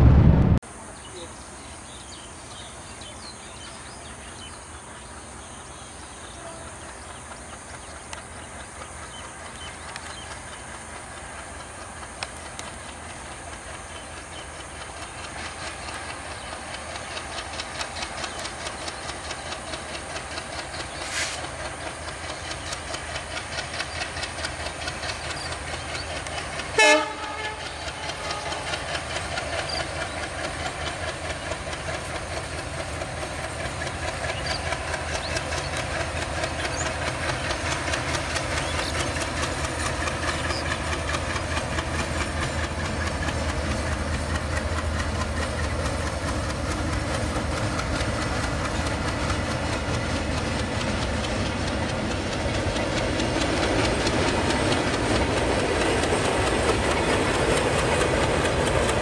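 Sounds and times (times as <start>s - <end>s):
train wheels clicking over rail joints: 1.9s - 59.0s
train horn blast: 26.7s - 28.7s.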